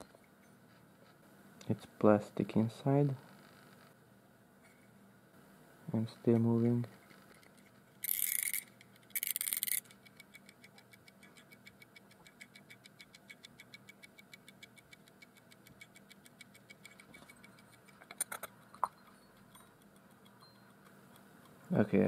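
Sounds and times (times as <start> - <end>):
housing clicks and ring: 6.3 - 21.6
clockwork timer ticking: 8.0 - 21.6.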